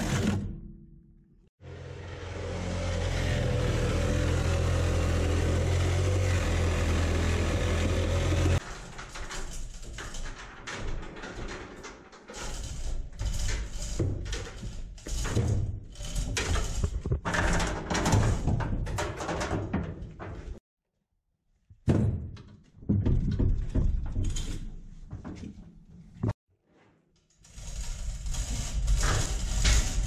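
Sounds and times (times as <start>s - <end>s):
metal clunks and rattles: 7.9s - 20.6s, 21.8s - 26.4s.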